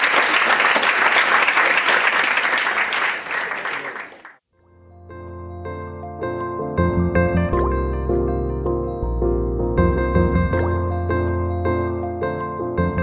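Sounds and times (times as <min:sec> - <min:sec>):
audience applauding: 0:00.0 - 0:04.4
instrumental music: 0:04.6 - 0:13.0.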